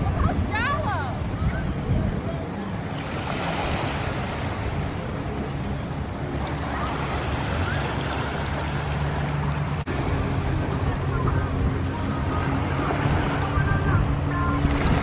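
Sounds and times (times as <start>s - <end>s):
wind noise on microphone: 0.0s - 6.9s, 9.8s - 15.0s
waves washing on sandy beach: 0.0s - 15.0s
steady low hum: 4.3s - 15.0s.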